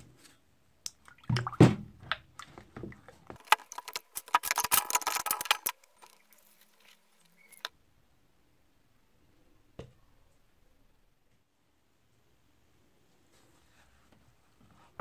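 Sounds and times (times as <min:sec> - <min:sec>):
splashing: 0:00.9 - 0:07.7
liquid sloshing: 0:01.0 - 0:07.7
metal parts clinking: 0:03.4 - 0:06.2.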